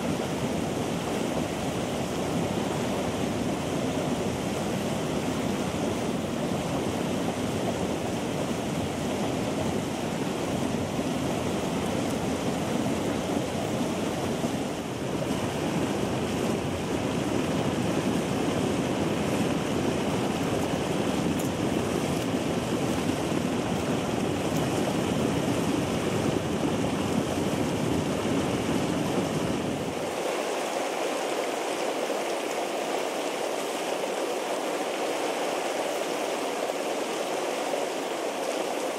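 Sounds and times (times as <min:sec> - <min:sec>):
hot spring bubbling through gravel: 0:00.0 - 0:38.9
water rushing and gurgling: 0:00.0 - 0:38.9.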